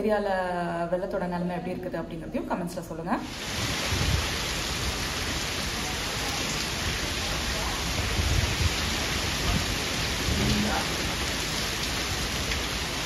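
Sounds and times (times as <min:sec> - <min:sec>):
heavy rain on water: 0:03.2 - 0:13.0.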